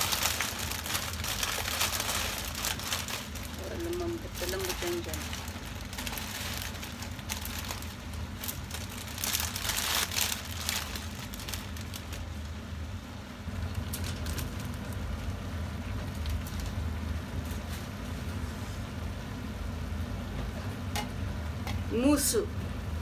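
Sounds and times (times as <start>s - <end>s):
light crackle from frying pan: 0.0s - 12.6s, 13.4s - 18.4s
plastic bag crinkling: 0.0s - 12.6s, 13.5s - 15.3s, 15.9s - 17.9s
dry noodles rustling: 0.0s - 12.7s, 13.4s - 18.4s
steady low hum: 0.0s - 23.0s.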